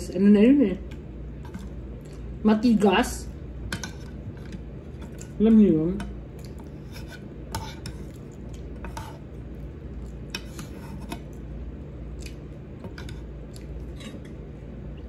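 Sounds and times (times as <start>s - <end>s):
steady low hum: 0.0s - 15.0s
metal spoon scraping a frying pan: 6.8s - 8.1s.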